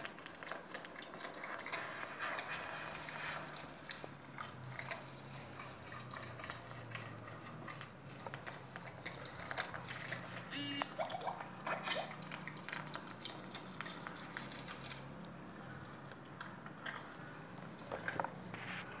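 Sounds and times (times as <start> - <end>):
toy wheels squelching through slime: 0.0 - 19.0.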